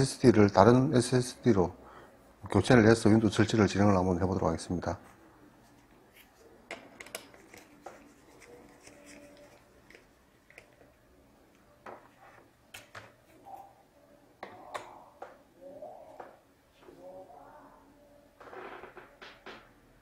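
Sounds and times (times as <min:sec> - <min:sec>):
faint clicks and taps: 0:05.8 - 0:13.4.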